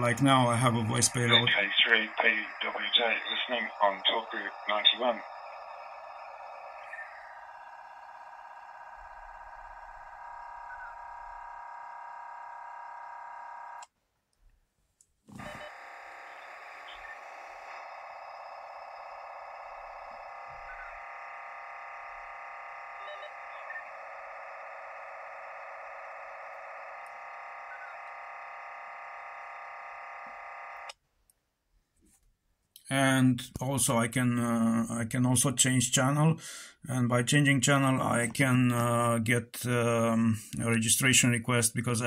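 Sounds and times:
digital radio signal buzz: 0.0 - 13.8, 15.4 - 30.9.

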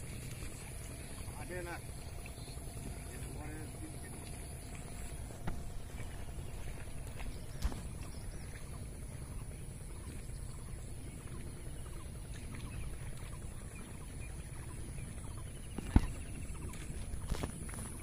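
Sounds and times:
low rumble: 0.0 - 18.0.

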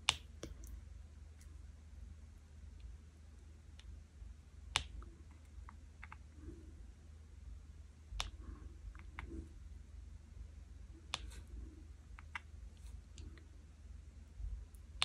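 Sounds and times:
faint low hum: 0.0 - 15.0.

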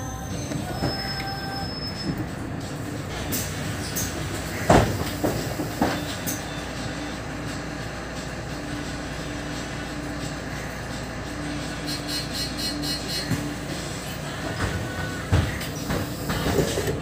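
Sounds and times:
thin squealing tones: 0.0 - 2.3
bus running noise: 0.0 - 17.0.

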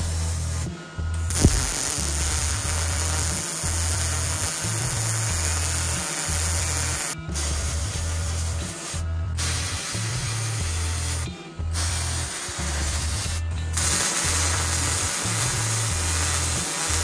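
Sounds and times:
welding arc crackling hiss: 0.0 - 11.2, 11.8 - 17.0
background music with deep bass: 0.0 - 17.0
welding arc pop: 1.3 - 7.2, 13.8 - 17.0.

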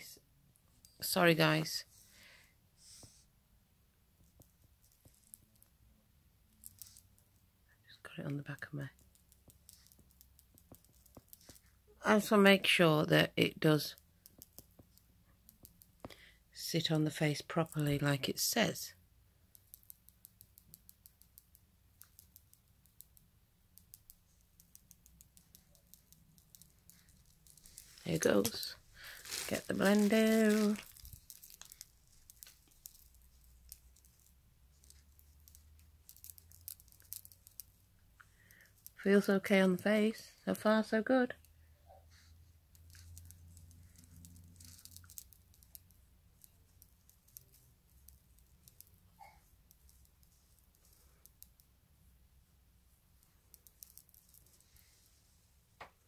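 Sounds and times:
makeup sponge dabbing skin: 23.8 - 37.9.

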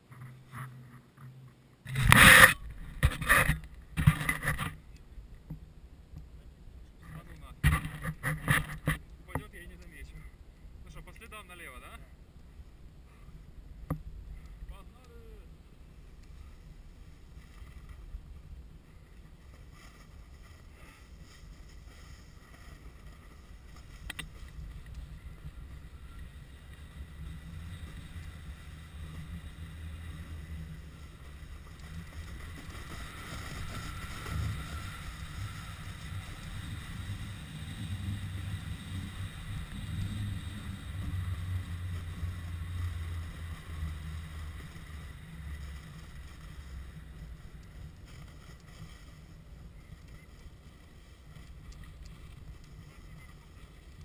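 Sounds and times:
skis hissing through snow: 18.9 - 54.0.

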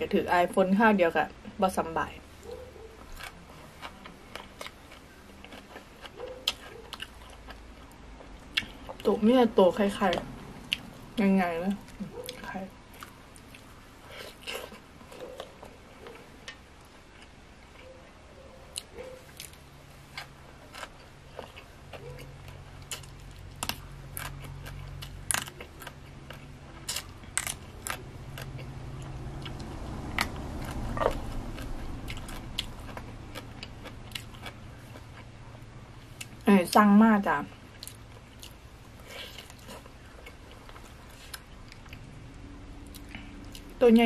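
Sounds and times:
crisp chewing crunches: 2.5 - 9.1, 18.7 - 35.4, 37.7 - 42.2
low hum: 7.2 - 36.5.

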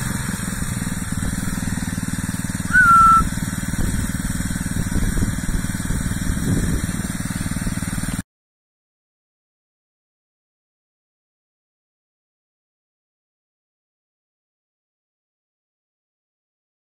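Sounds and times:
small engine running: 0.0 - 8.2
short high-pitched peep: 2.7 - 3.3.

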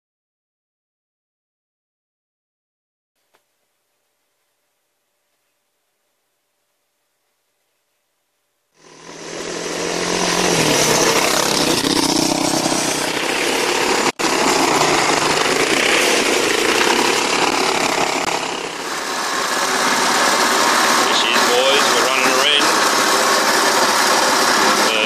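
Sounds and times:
buggy engine revving: 8.8 - 25.0
tyres sliding through dirt: 8.8 - 25.0.

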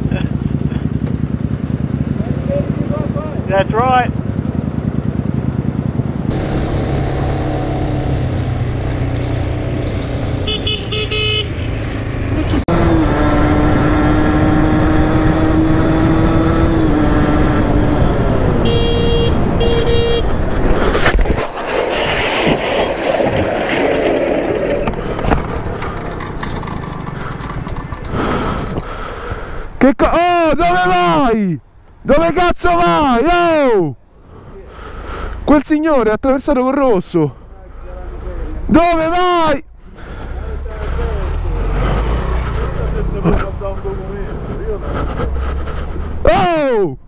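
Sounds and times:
motorcycle engine running: 0.0 - 11.5, 24.6 - 29.2
motorcycle cruising: 0.0 - 29.8, 39.9 - 46.8
road noise: 0.0 - 47.0
motorcycle engine idling: 25.6 - 29.2.

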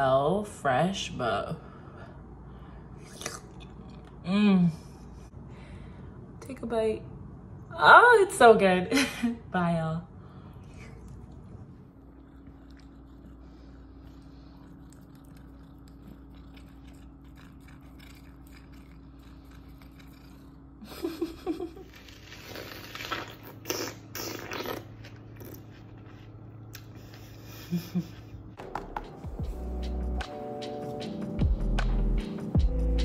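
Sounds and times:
faint low hum: 0.0 - 28.6
crunching bites of watermelon: 22.1 - 25.9
music: 28.6 - 33.0.

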